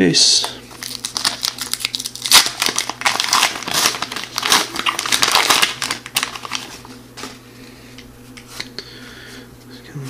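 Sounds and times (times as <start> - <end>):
wrapper crinkling being torn: 0.7 - 7.4.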